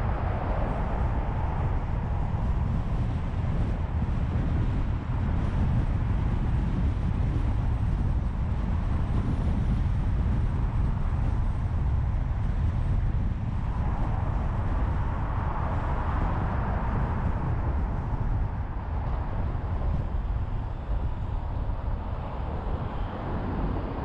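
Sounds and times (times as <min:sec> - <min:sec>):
road traffic rumble: 0:00.0 - 0:24.0.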